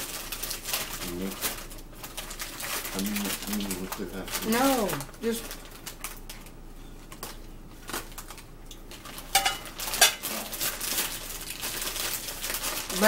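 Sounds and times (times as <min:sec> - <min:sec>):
faint rustles of chip bag: 0:00.0 - 0:13.0
ceramic plates clinking: 0:09.3 - 0:10.2.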